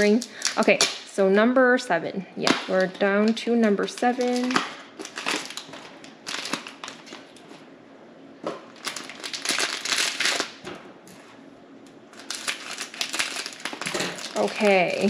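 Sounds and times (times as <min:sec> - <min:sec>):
foil bag crinkling: 0:02.6 - 0:07.4, 0:08.7 - 0:10.6, 0:12.1 - 0:15.0
scissors cutting foil: 0:03.7 - 0:05.6.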